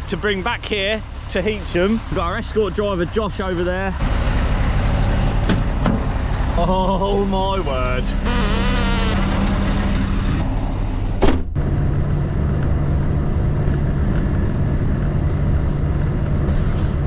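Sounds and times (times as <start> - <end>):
diesel truck engine idling: 0.0 - 11.2.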